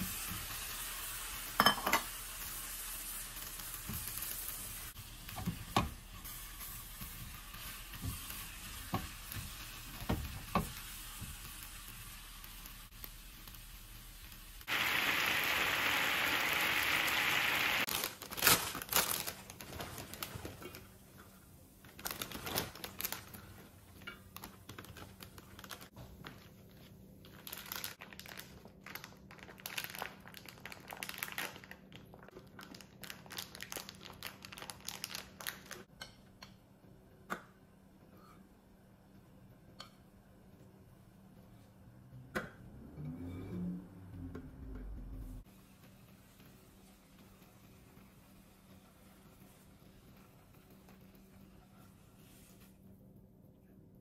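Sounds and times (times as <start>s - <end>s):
loud steady hiss: 13.7s - 17.9s
plastic bags crinkling: 17.9s - 20.9s, 21.9s - 23.6s, 24.3s - 26.6s, 27.2s - 35.8s.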